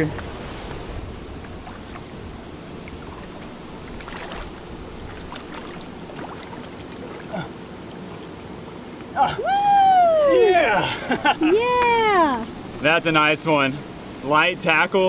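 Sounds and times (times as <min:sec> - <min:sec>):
river water flowing: 0:00.0 - 0:15.0
fish splashing: 0:01.2 - 0:08.4.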